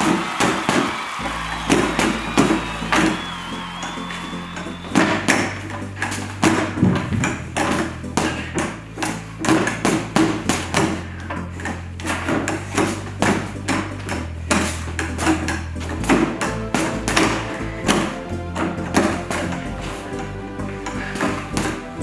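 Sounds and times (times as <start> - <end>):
boxing gloves hitting punching ball: 4.9 - 19.6.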